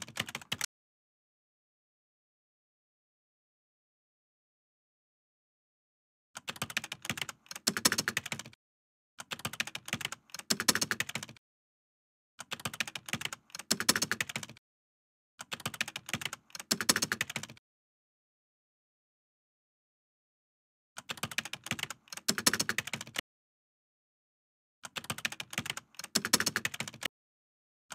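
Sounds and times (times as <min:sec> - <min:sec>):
keyboard typing clicks: 0:00.0 - 0:00.7, 0:06.4 - 0:08.6, 0:09.2 - 0:11.4, 0:12.4 - 0:14.6, 0:15.4 - 0:17.6, 0:21.0 - 0:23.2, 0:24.8 - 0:27.1.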